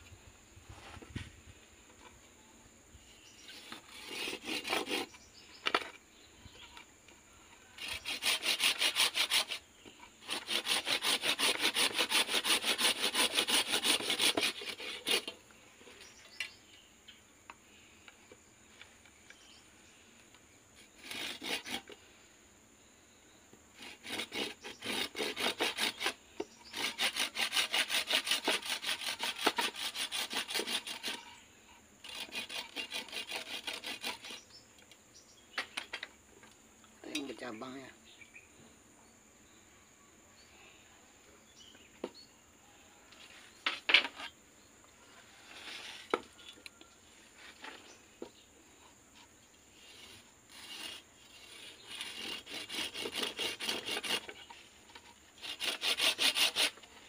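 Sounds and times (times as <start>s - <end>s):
hand saw cutting stems: 3.5s - 5.9s, 7.8s - 9.6s, 10.2s - 15.4s, 20.8s - 22.0s, 23.8s - 31.3s, 32.0s - 34.5s, 49.8s - 57.0s.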